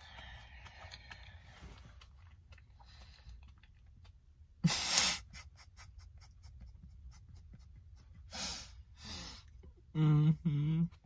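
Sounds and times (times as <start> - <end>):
person chewing sandwich: 0.0 - 8.1.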